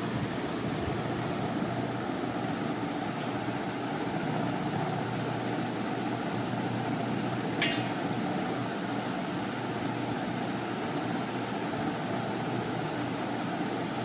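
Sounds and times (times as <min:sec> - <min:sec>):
background hum and hiss: 0:00.0 - 0:14.0.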